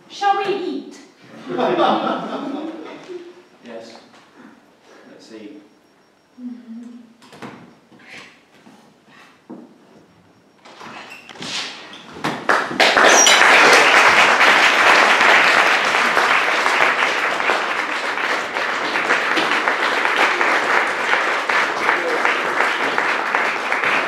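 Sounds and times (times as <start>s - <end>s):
audience applauding: 12.4s - 24.0s.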